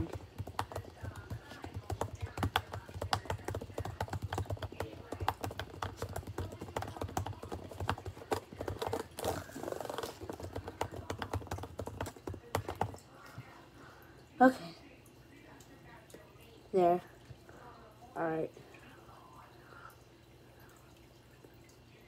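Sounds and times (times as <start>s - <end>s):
laptop keyboard typing: 0.0s - 13.0s.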